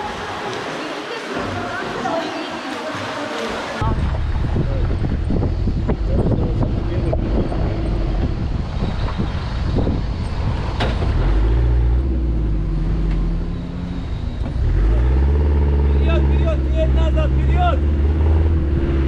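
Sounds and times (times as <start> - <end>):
vehicle engine rumbling: 3.8 - 19.0.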